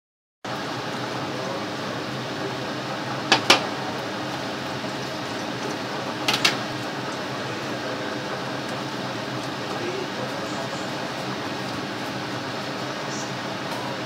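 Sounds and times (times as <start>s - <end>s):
metal pan clacking on stove grate: 3.3s - 3.6s.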